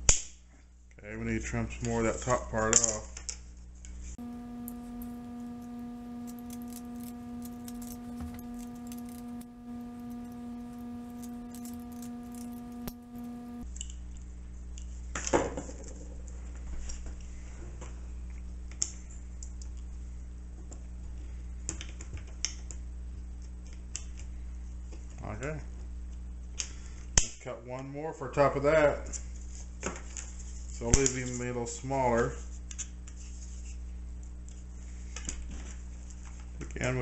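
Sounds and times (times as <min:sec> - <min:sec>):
steady hum: 0:04.2 - 0:13.7.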